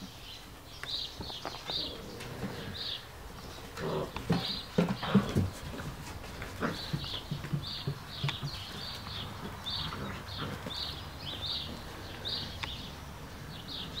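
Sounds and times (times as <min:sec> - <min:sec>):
small bird chirping: 0:00.0 - 0:05.2.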